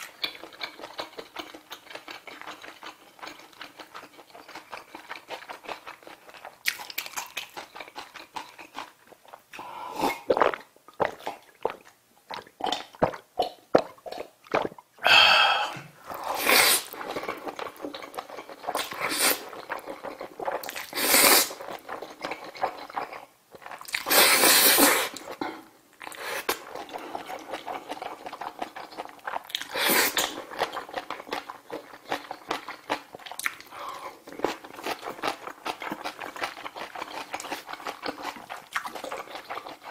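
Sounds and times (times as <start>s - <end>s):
wet chewing: 0.0s - 14.8s, 16.1s - 39.9s
loud noodle slurps: 14.5s - 22.8s, 23.9s - 25.3s, 29.6s - 31.0s.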